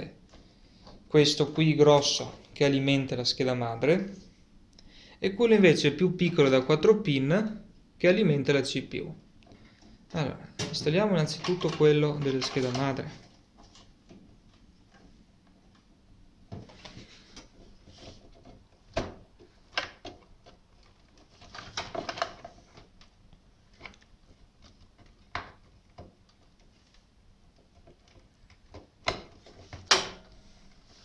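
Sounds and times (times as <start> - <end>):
cables rustling: 9.2 - 31.0.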